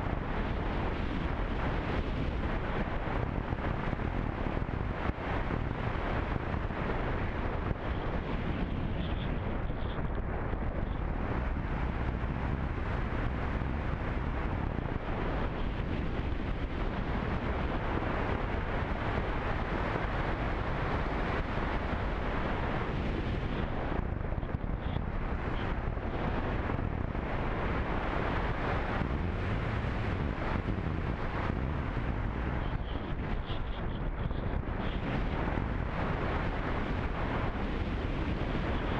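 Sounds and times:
wind rush on microphone: 0.0 - 38.9.

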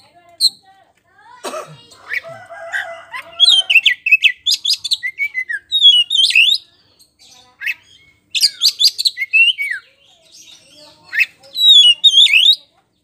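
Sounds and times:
bird singing whistled phrases: 3.4 - 6.6, 7.6 - 12.7.

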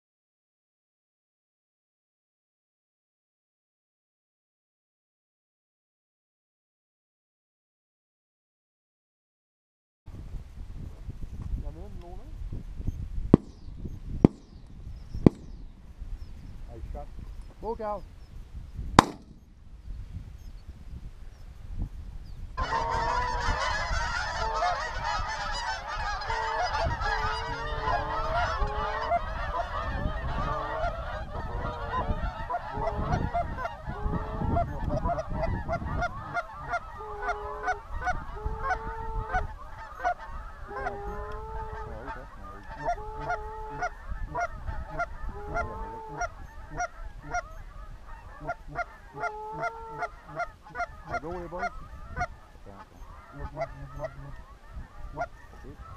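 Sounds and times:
wind rumble on microphone: 10.1 - 55.9
geese honking: 14.3 - 15.6, 22.6 - 55.9.

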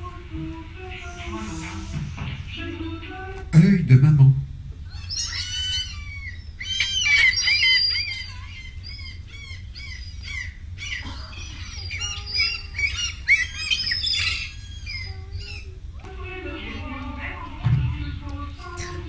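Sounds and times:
bird-like chirps and squawks: 4.9 - 15.7.

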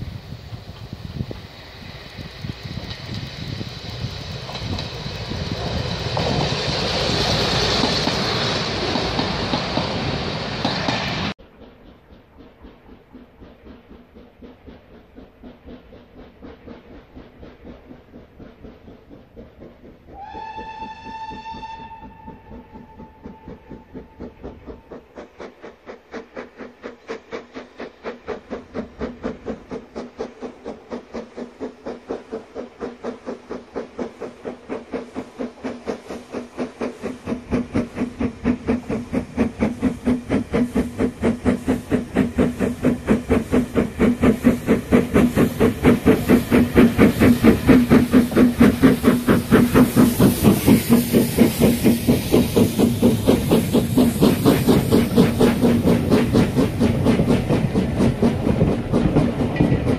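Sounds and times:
steam locomotive exhaust beats: 0.0 - 59.9
steam locomotive whistle: 20.1 - 24.4.

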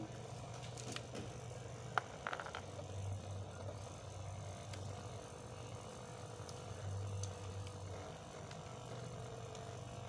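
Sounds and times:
steady low hum: 0.0 - 10.0
small parts clicking and tapping: 0.6 - 2.8.

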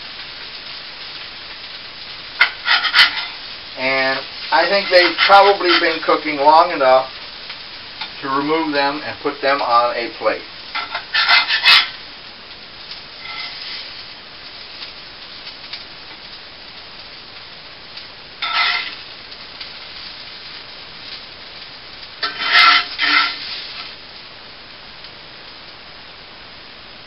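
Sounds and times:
potatoes sizzling in a pan: 0.0 - 27.0
spatula scraping a pan: 2.4 - 3.4, 4.4 - 6.2, 10.7 - 12.0, 13.2 - 14.0, 18.4 - 19.0, 22.2 - 24.0.

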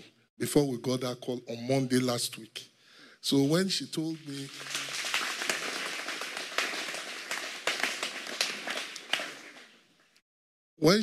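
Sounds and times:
congregation applauding: 4.2 - 9.8.

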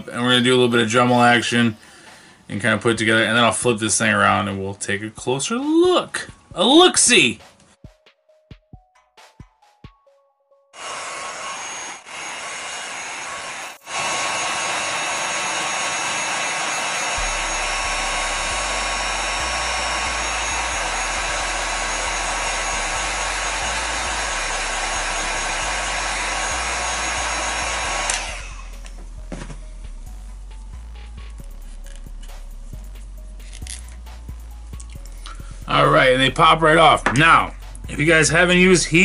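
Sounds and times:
heat gun blowing: 10.8 - 39.0.

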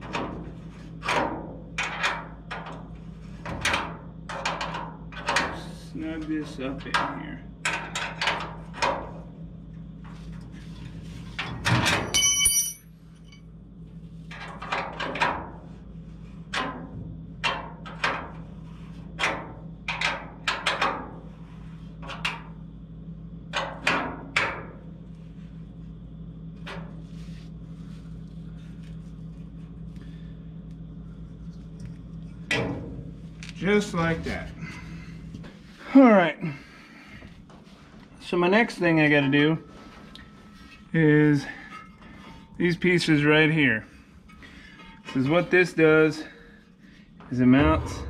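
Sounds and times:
steady low hum: 0.2 - 48.0
ringing metal clank: 12.0 - 12.8
wrench clinking on steel bolts: 12.0 - 12.8.

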